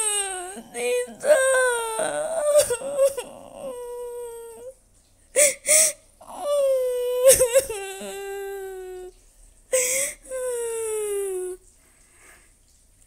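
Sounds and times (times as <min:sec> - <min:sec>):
gasping sobs: 0:00.0 - 0:04.7, 0:05.3 - 0:11.6
woman fake crying wails: 0:00.0 - 0:04.7, 0:06.3 - 0:09.1.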